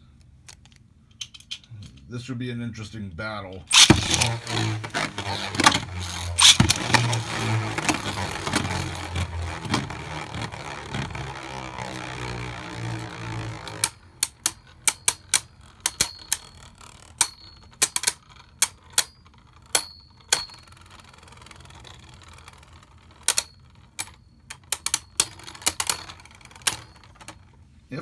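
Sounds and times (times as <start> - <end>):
spinning tops clashing: 3.7 - 21.8.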